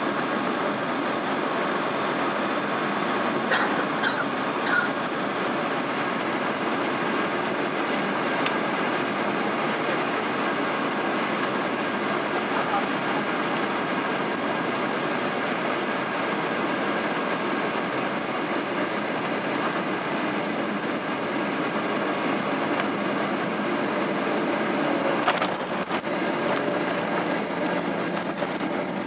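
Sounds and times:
airflow rush in aircraft cabin: 0.0 - 29.0
jet engine noise: 0.0 - 29.0.

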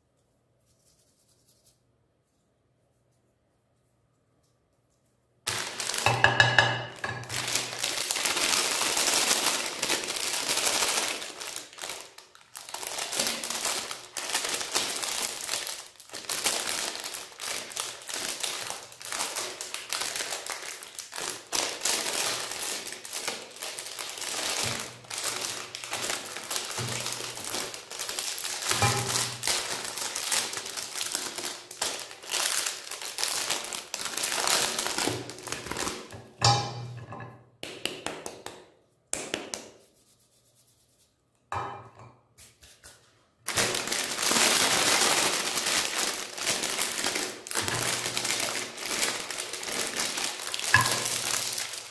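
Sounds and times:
foil wrappers crinkling: 5.5 - 36.4, 43.4 - 51.9.

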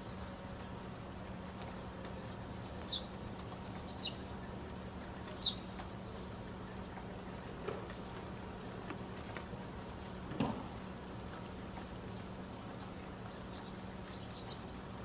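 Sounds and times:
low steady hum: 0.0 - 15.0.

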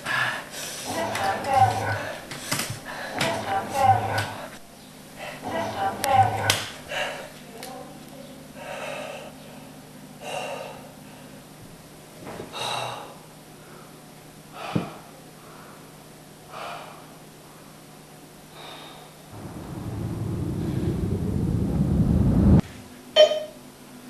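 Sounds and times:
man breathing hard: 10.2 - 11.4, 12.5 - 15.9, 16.5 - 17.2, 18.5 - 19.3
low rumble: 19.3 - 22.6.

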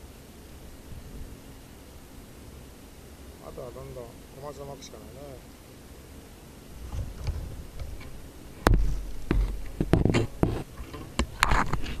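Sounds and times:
camera handling knocks and thumps: 6.8 - 8.1, 8.7 - 10.6.

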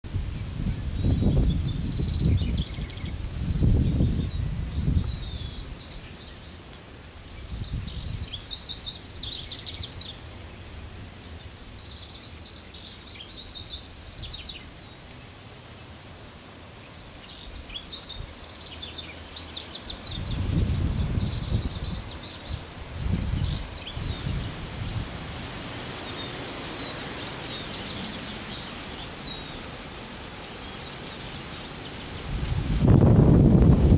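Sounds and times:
bird singing rapid jumbled notes: 0.4 - 6.6, 7.2 - 10.2, 11.2 - 15.0, 16.6 - 24.5, 26.1 - 33.0.

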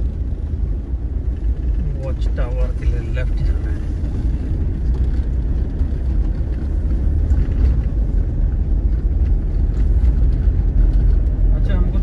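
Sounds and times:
car cabin road rumble: 0.0 - 12.0.

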